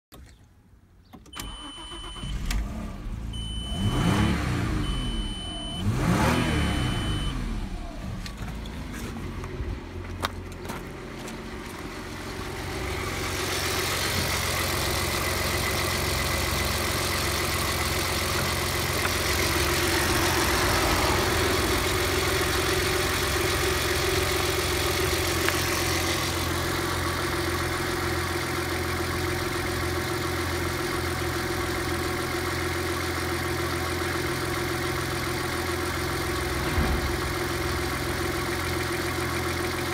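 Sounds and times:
car engine starting and revving: 1.4s - 10.1s, 12.0s - 39.9s
warning chime beeping: 3.4s - 7.6s.

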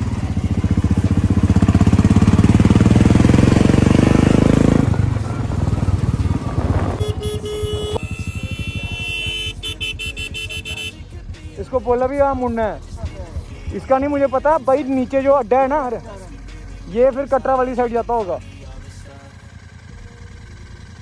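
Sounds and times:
motorcycle engine running: 0.0s - 21.0s
wind noise: 6.2s - 7.4s
steady held tone: 7.0s - 11.0s.

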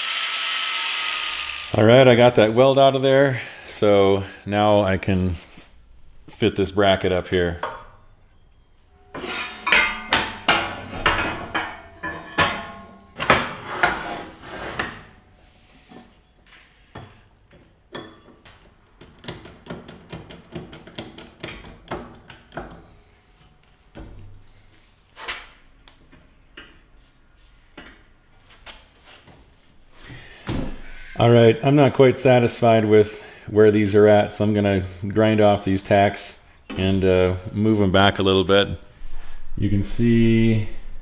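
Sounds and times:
metal plates clanking: 9.0s - 14.0s.

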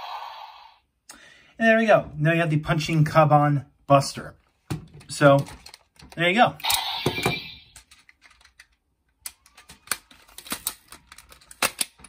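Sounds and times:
plastic toy clicks and knocks: 7.0s - 12.0s.

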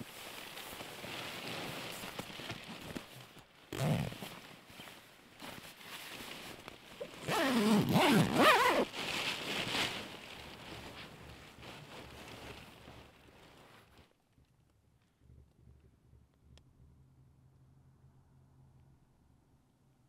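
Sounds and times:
sleeping bag rustling: 0.0s - 14.1s
zipper being pulled: 3.7s - 4.3s, 7.2s - 8.9s.

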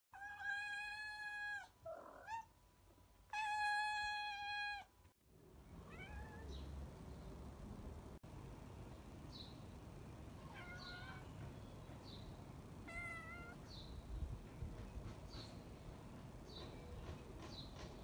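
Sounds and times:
cat meowing: 0.2s - 2.5s, 3.3s - 4.9s, 5.8s - 6.6s, 10.4s - 11.3s, 12.8s - 13.6s.

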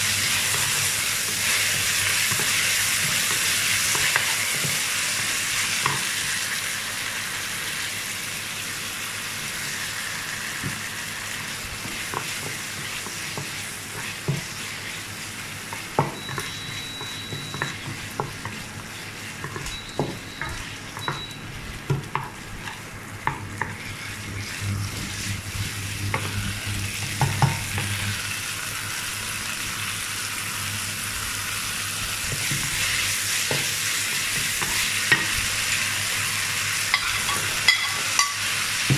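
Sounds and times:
chicken sizzling in a wok: 0.0s - 38.9s
wooden spatula scraping pan: 23.6s - 27.1s.

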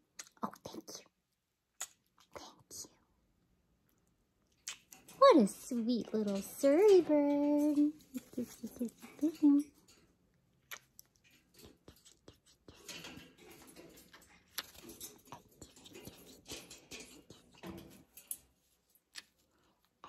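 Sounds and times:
soft kissing smacks and clicks: 1.8s - 2.4s, 10.7s - 11.1s.

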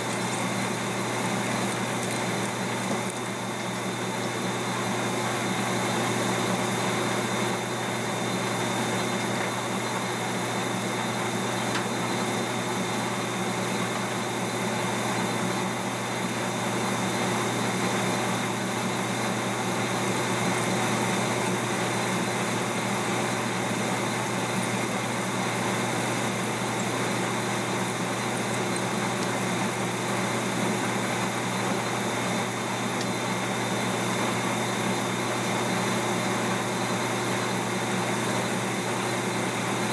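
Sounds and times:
metal lathe cutting: 0.0s - 6.3s, 20.1s - 37.3s.

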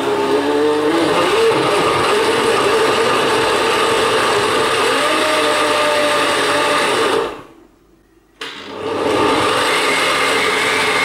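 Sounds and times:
blender motor running: 0.0s - 7.5s, 8.7s - 11.0s.

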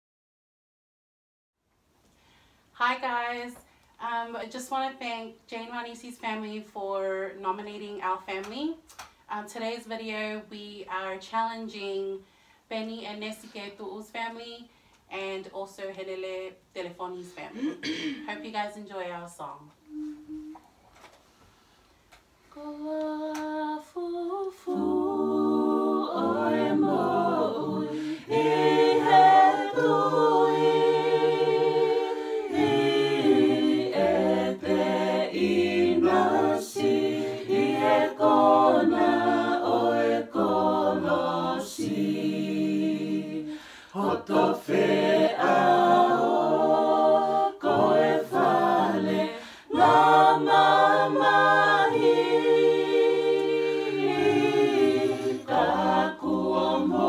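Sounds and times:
choir singing a cappella: 22.6s - 57.0s.

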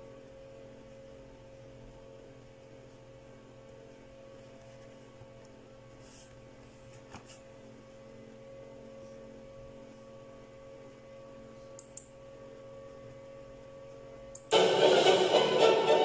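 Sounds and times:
faint steady hum: 0.0s - 16.0s
orchestral music with violins: 14.5s - 16.0s.

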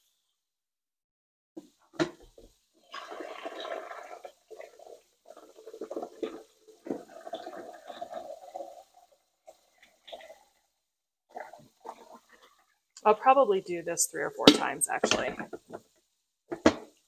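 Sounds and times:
water gurgling in coffee maker: 2.8s - 10.7s, 11.3s - 13.1s.

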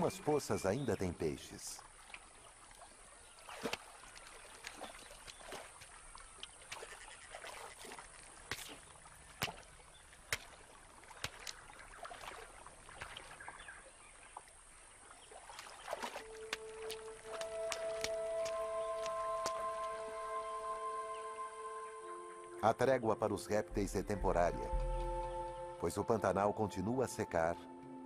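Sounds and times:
sharp water clicks: 1.8s - 20.0s
small water splashes: 1.8s - 20.0s.

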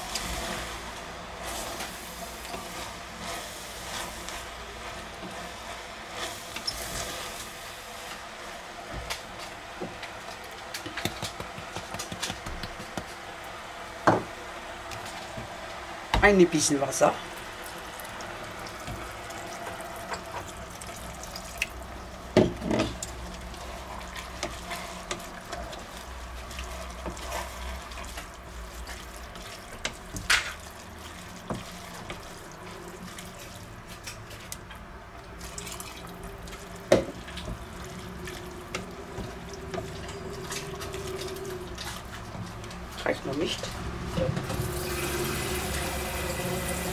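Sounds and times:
wooden spoon stirring: 1.4s - 8.2s, 17.4s - 43.8s
water pouring into a pot: 17.3s - 22.3s, 35.4s - 42.6s, 44.5s - 46.9s.

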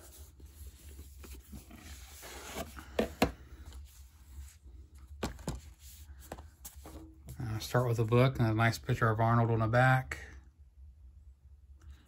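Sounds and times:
cardboard rubbing and scraping: 0.0s - 3.2s.

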